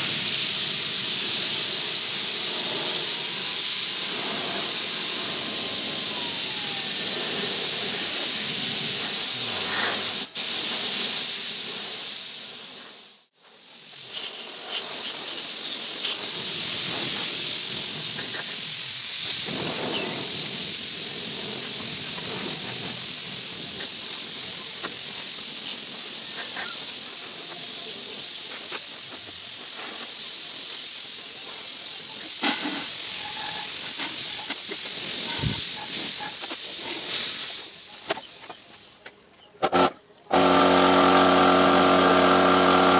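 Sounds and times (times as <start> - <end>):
paint spray gun hissing: 0.0 - 39.0, 39.6 - 42.9.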